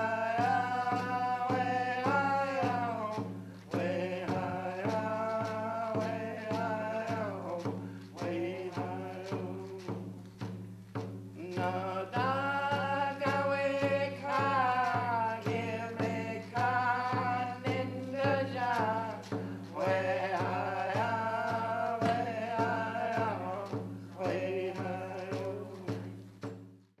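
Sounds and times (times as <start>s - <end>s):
even beat: 0.0s - 26.8s
chanted vocal line: 12.0s - 26.1s.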